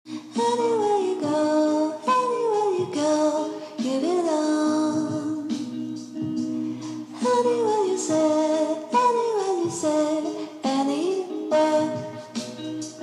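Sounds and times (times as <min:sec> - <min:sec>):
person singing melody: 0:00.1 - 0:13.0
steady musical accompaniment: 0:05.0 - 0:13.0.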